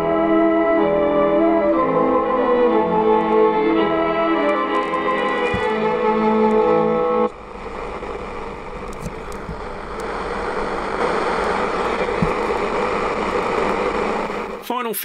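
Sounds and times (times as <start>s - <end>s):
radio music: 1.0s - 15.0s
radio static hiss: 4.6s - 15.0s.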